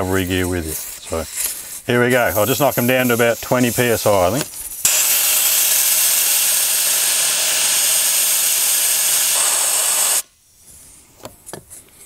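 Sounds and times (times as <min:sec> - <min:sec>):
air hissing out of a tyre: 0:00.8 - 0:03.2, 0:04.5 - 0:10.6.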